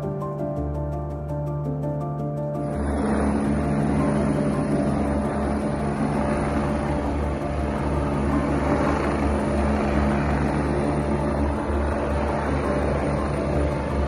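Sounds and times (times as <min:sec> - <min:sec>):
helicopter rotor and turbine engine: 0:00.0 - 0:14.0.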